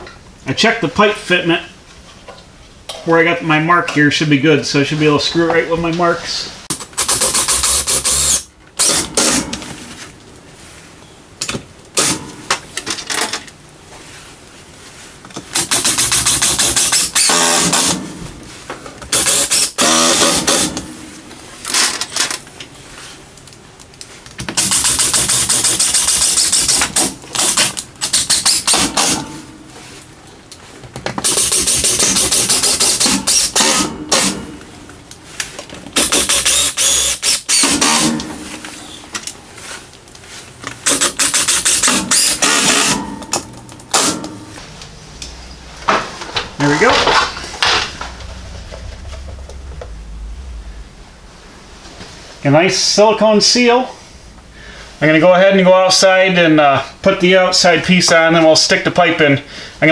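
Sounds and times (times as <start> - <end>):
power screwdriver driving screws: 6.7 - 9.4, 15.5 - 18.0, 19.1 - 20.8, 24.6 - 29.2, 31.2 - 34.4, 36.0 - 38.2, 40.8 - 43.0.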